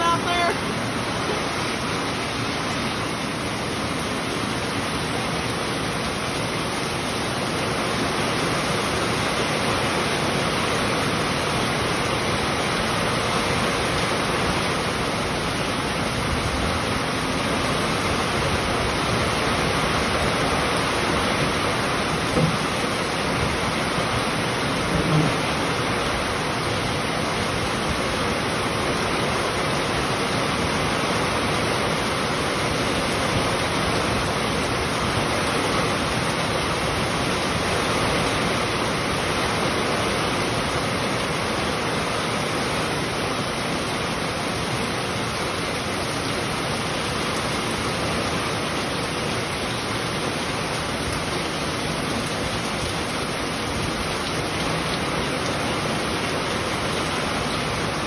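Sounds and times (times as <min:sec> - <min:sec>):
heavy rain pouring: 0:00.0 - 0:58.0.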